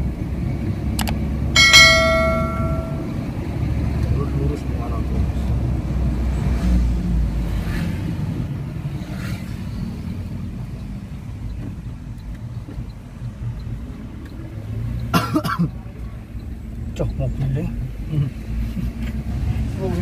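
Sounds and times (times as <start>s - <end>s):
vehicle engine and road rumble: 0.0s - 20.0s.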